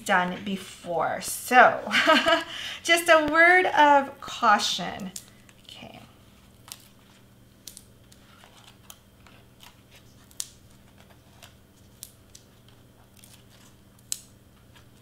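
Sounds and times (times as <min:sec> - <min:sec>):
faint steady hum: 0:00.0 - 0:15.0
paper rustling: 0:08.0 - 0:13.8.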